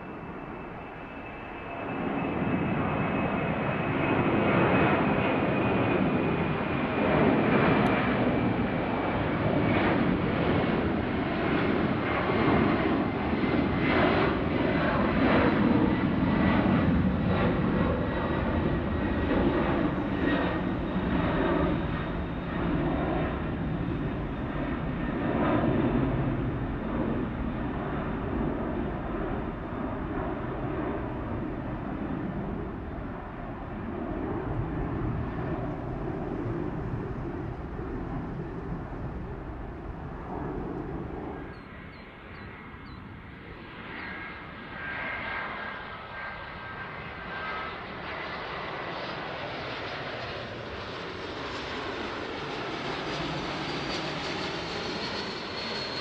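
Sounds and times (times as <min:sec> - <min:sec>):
jet airliner engines roaring: 0:00.0 - 0:56.0.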